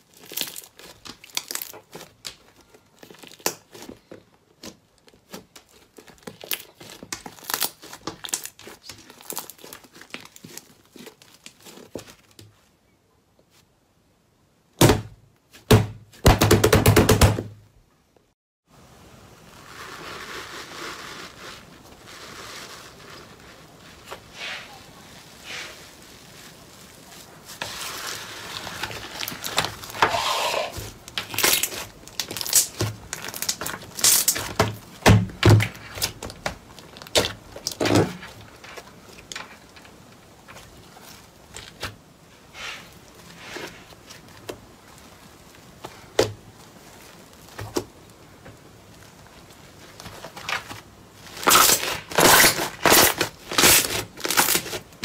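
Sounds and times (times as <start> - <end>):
slime crackling and popping: 0.0 - 12.4, 30.7 - 42.0, 44.0 - 55.0.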